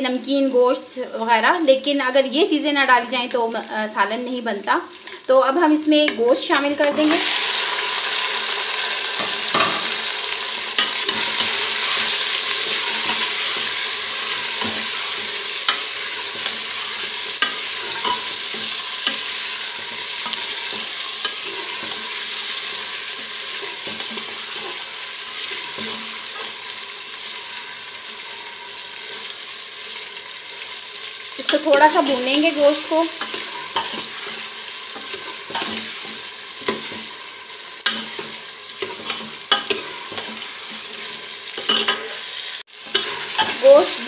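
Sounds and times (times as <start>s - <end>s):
meat sizzling in hot oil: 0.0s - 44.0s
metal spatula scraping pot: 10.7s - 26.7s, 31.4s - 37.1s, 37.8s - 44.0s.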